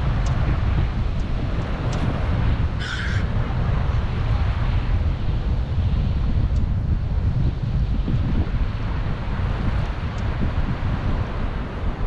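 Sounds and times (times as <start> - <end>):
wind buffeting microphone: 0.0 - 12.0
bird call: 2.8 - 3.3.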